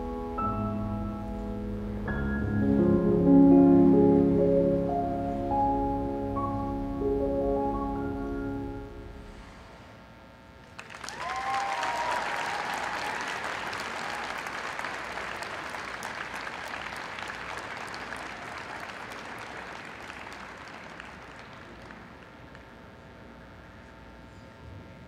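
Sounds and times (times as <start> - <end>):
crowd applauding: 10.6 - 23.0
voices cheering: 11.0 - 15.8.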